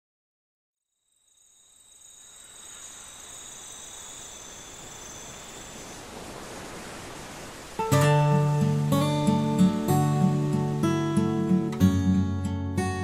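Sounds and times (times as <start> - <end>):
insects chirping: 0.8 - 11.8
hiss: 1.4 - 9.0.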